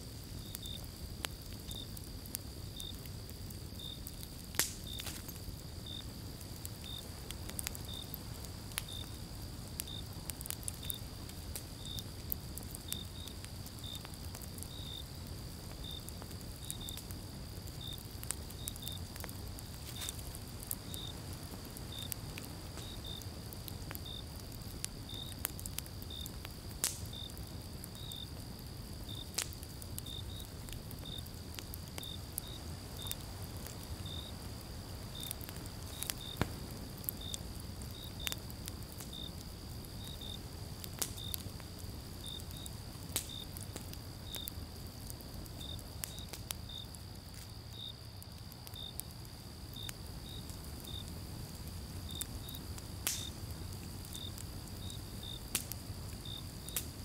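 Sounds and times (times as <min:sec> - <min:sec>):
campfire crackling and popping: 0:00.0 - 0:57.0
crickets chirping: 0:00.0 - 0:57.0.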